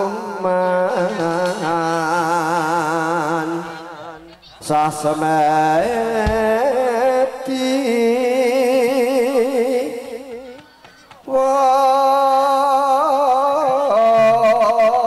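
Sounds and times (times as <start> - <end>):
person singing long held notes: 11.3 - 15.0.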